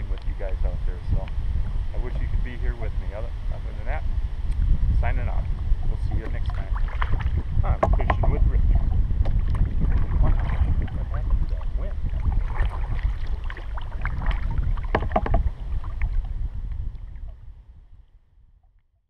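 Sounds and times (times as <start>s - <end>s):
wind rumbling on microphone: 0.0s - 18.7s
paddle strokes splashing water: 5.4s - 17.4s.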